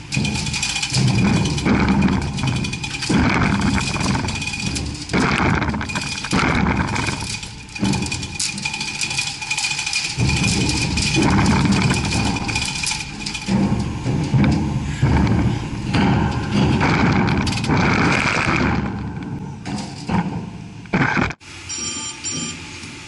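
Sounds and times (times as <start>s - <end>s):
heavy gearbox scraping on grating: 0.0s - 20.1s
faint high whine: 21.6s - 22.8s.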